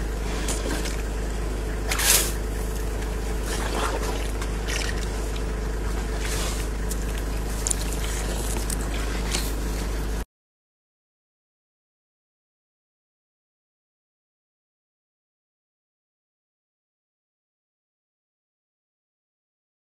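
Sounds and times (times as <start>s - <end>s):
steady low hum: 0.0s - 10.3s
wet squelching splashes: 1.8s - 10.0s.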